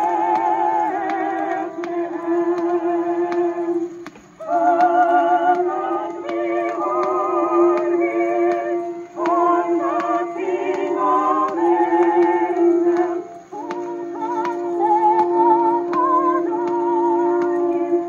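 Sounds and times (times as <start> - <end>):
old recording of person singing: 0.0 - 18.0.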